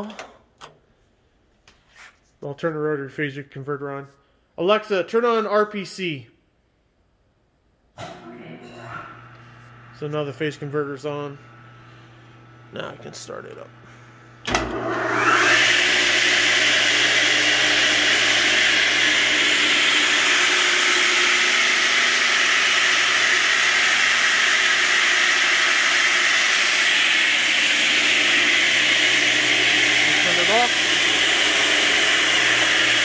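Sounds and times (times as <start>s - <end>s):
radial arm saw whirring: 14.4s - 33.0s
saw motor rising whine: 14.5s - 33.0s.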